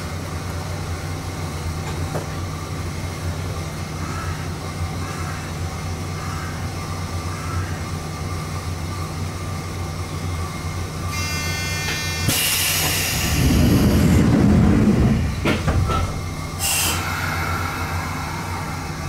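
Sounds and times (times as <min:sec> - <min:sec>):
electric train humming: 0:00.0 - 0:19.0
train doors knocking shut: 0:01.8 - 0:02.4, 0:11.7 - 0:17.2
short buzzer: 0:11.1 - 0:13.4
compressed air hissing: 0:12.2 - 0:14.2, 0:16.6 - 0:18.5.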